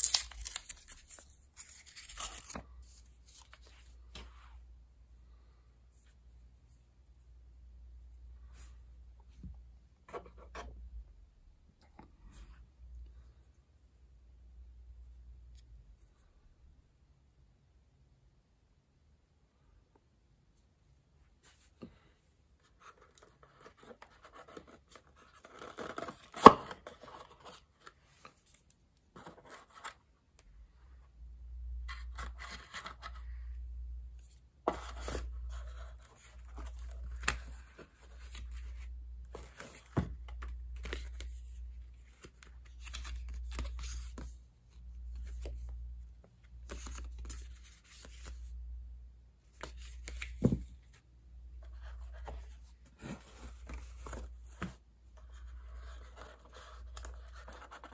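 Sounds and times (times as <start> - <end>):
plastic parts and packaging rustling: 0.0 - 4.4.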